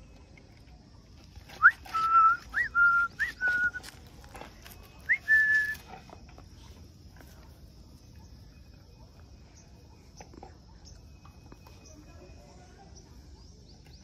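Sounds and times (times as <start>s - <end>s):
person whistling for dogs: 1.6s - 3.9s, 5.1s - 5.9s.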